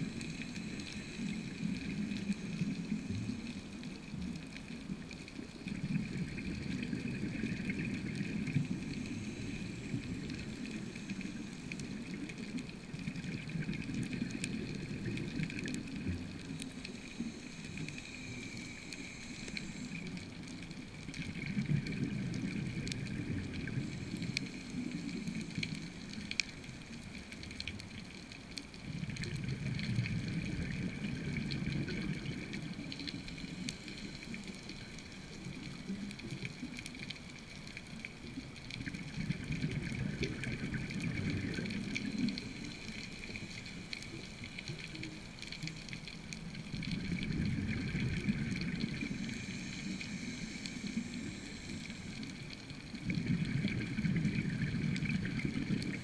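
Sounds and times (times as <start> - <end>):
bubbles rumbling underwater: 0.0 - 18.0, 19.9 - 37.1, 37.7 - 56.0
faint crackling clicks: 0.0 - 56.0
diver breathing through regulator: 49.0 - 52.4.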